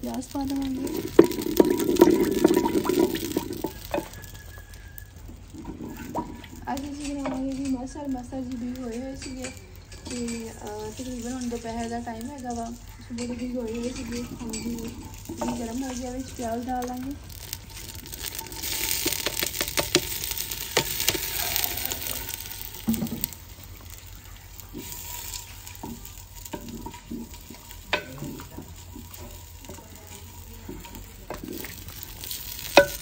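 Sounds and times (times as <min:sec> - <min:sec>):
onions sizzling in hot oil: 0:00.0 - 0:33.0.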